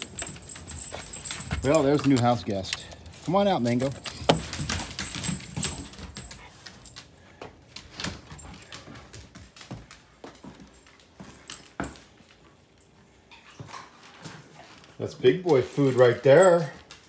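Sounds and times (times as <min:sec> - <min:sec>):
metallic jingle: 0:00.0 - 0:07.2, 0:15.7 - 0:17.0
dogs moving with light clicks: 0:00.0 - 0:17.0.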